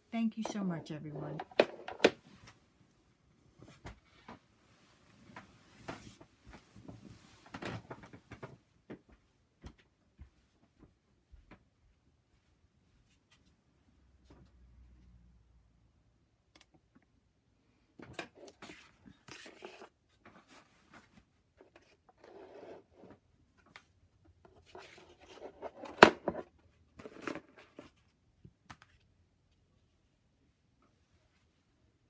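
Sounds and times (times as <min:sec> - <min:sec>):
rustling and scraping of paper: 0:18.3 - 0:23.8.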